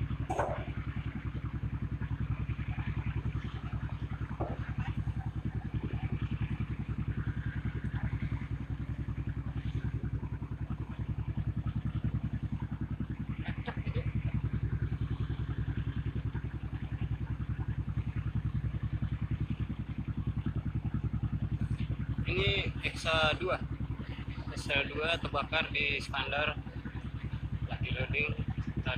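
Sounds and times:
boat diesel engine throbbing: 0.0 - 28.9.

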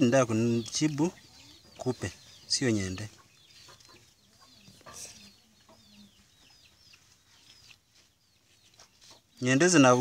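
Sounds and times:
chicks cheeping: 0.0 - 10.0
chicken clucks: 0.1 - 10.0.

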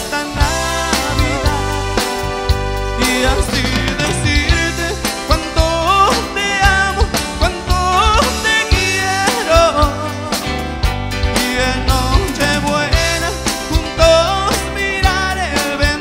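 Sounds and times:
drums: 0.0 - 16.0
electric bass: 0.0 - 16.0
electric guitar: 0.0 - 16.0
keyboard: 0.0 - 16.0
sliding lead melody: 0.0 - 16.0.

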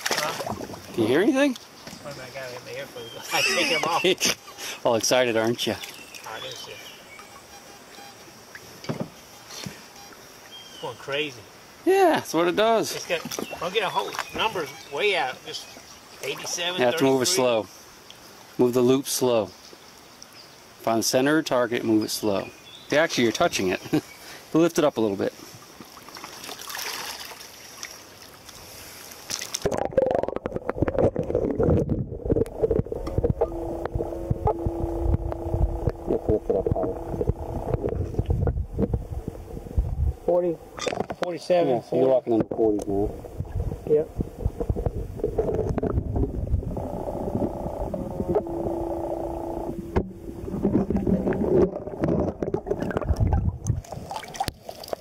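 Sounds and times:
muffled underwater flow: 0.0 - 1.6, 28.6 - 40.9, 42.2 - 55.0
stream hissing: 2.2 - 7.2, 7.8 - 29.8, 46.7 - 53.1
metal detector tones: 7.2 - 8.3, 33.0 - 38.2, 46.8 - 51.4
steady low hum: 30.0 - 40.8, 42.9 - 54.0.

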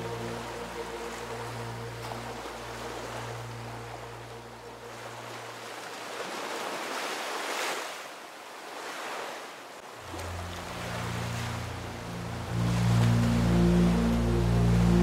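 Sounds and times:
background music with bass: 0.0 - 3.6, 10.3 - 15.0
waves breaking: 0.0 - 15.0.

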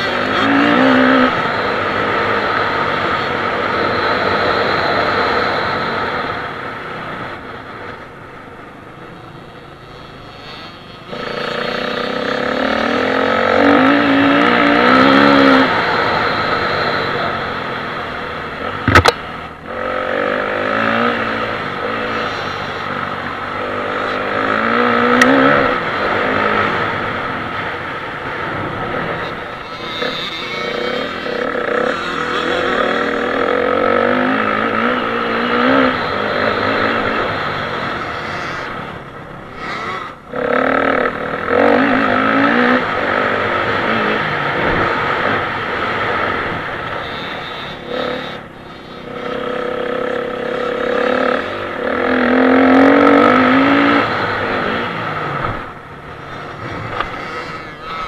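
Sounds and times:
dirt bike engine revving: 0.0 - 7.4, 9.8 - 58.0.

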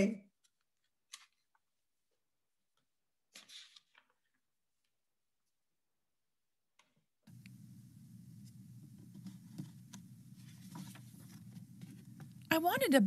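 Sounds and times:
faint low hum: 7.3 - 13.0.

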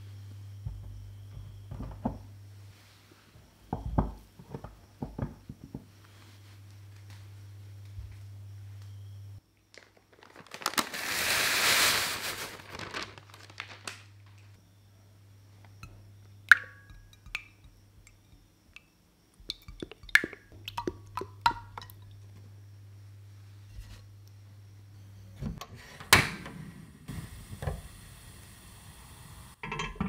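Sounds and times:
containers tapping on saucepan: 16.5 - 22.2
liquid pouring: 19.4 - 22.1.

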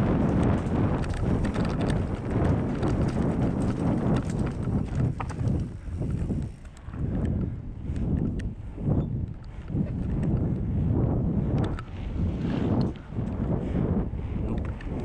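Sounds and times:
bike rattling over roots: 0.0 - 7.0
wind buffeting microphone: 0.0 - 15.0
light ticks: 0.4 - 8.5, 11.5 - 11.9.

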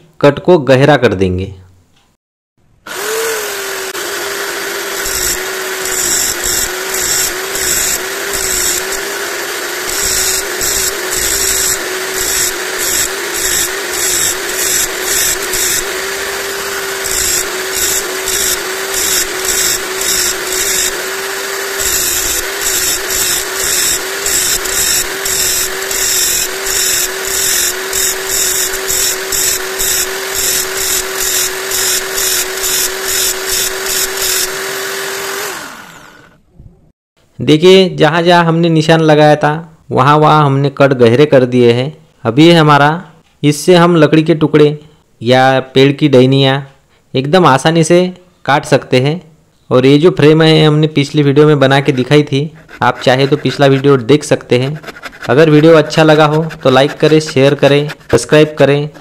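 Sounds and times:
electric drill motor whine: 2.9 - 36.4
metal grinding: 2.9 - 36.4, 51.7 - 59.0.

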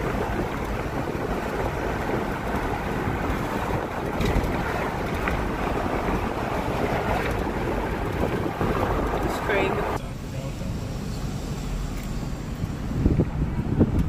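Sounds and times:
wind on microphone: 0.0 - 10.0, 11.5 - 14.0
car road noise inside cabin: 0.0 - 14.0.

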